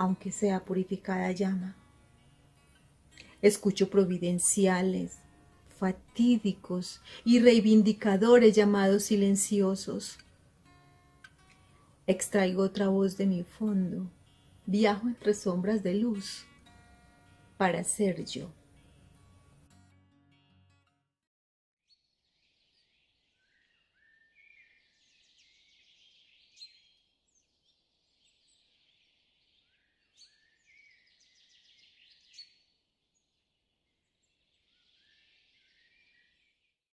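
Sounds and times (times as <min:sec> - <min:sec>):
music: 0:00.0 - 0:21.3
birds chirping and twittering: 0:21.9 - 0:36.7.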